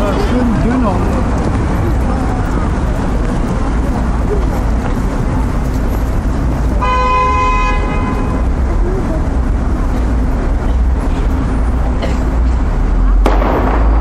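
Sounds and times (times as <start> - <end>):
low city traffic rumble: 0.0 - 14.0
car horn: 6.8 - 8.5.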